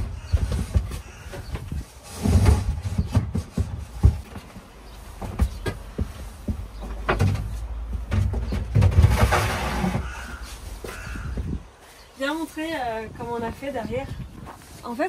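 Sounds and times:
plastic jerrycans knocking: 0.0 - 11.0
jerrycan scraping: 0.4 - 4.3, 8.1 - 11.0.

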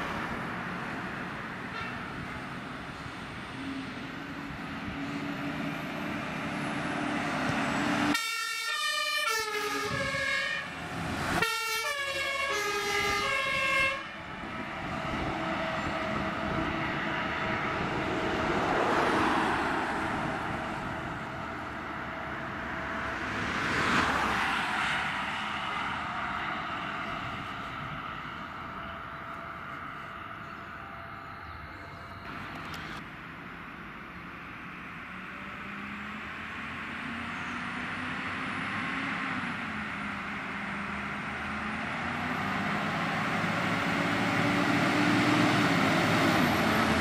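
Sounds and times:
trucks driving past: 0.0 - 47.0
fire engine two-tone siren: 7.6 - 17.1, 25.0 - 32.7.

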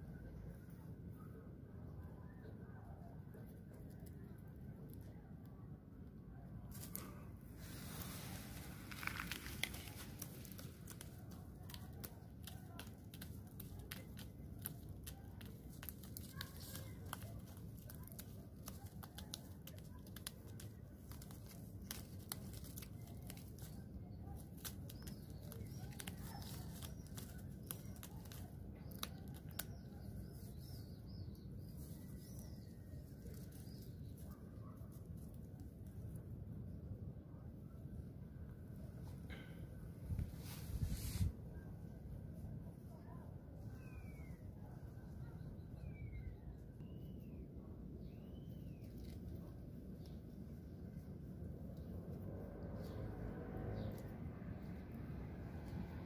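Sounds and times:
close rustling and crackling: 6.7 - 36.7, 48.0 - 53.0
faint bird chirps: 42.7 - 50.4.

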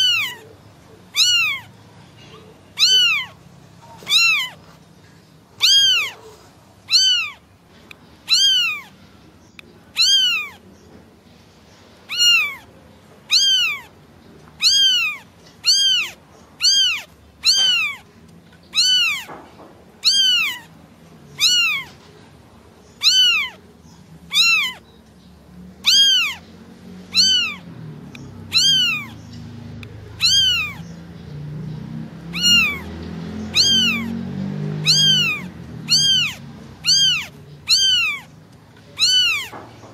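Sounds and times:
kitten meowing: 0.0 - 0.5, 1.1 - 1.8, 2.7 - 4.7, 5.6 - 6.3, 6.9 - 7.4, 8.2 - 9.0, 9.9 - 10.6, 12.1 - 12.7, 13.3 - 14.0, 14.6 - 18.1, 18.7 - 19.4, 20.0 - 20.7, 21.3 - 22.0, 23.0 - 23.6, 24.3 - 24.8, 25.8 - 26.4, 27.1 - 29.2, 30.1 - 31.0, 32.2 - 38.3, 38.9 - 39.7.

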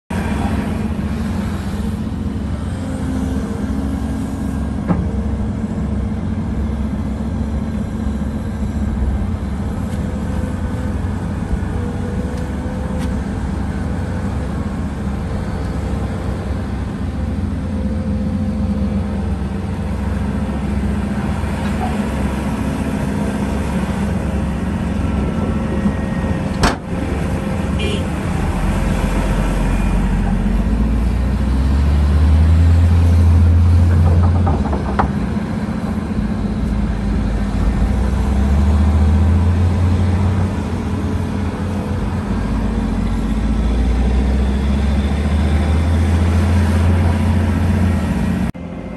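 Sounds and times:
excavator diesel engine running: 0.1 - 48.9.

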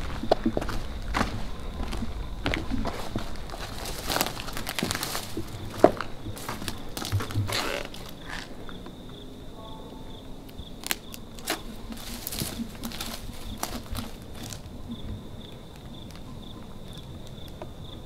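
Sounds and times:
footsteps on dry brush: 0.0 - 8.6, 10.8 - 14.9
crickets chirping: 0.0 - 18.0.

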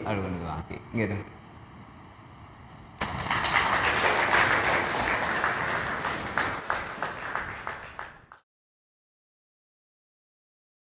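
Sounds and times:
audience applause: 3.0 - 8.4.

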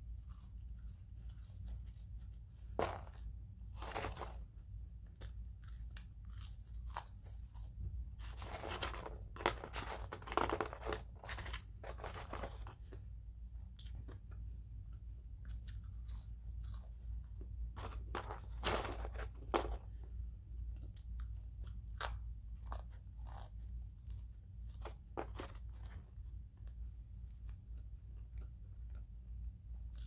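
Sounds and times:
person chewing fries: 0.0 - 13.0, 13.7 - 19.8, 20.7 - 25.9, 27.2 - 30.0
steady low hum: 0.0 - 30.0
cardboard carton rustling: 17.8 - 19.8.

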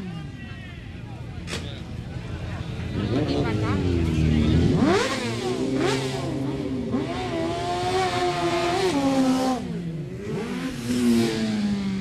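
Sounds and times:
motorcycles revving past: 2.9 - 12.0.

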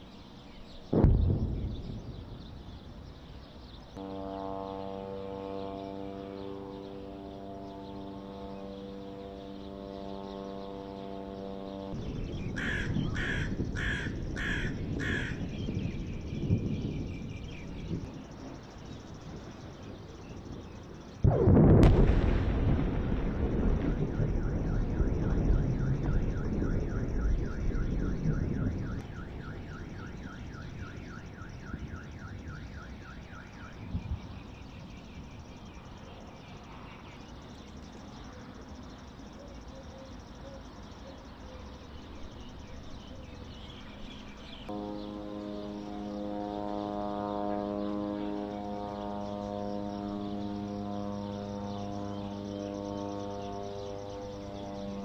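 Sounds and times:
explosion blast: 0.9 - 2.8, 21.2 - 27.2
deep rolling rumble: 21.3 - 28.8.

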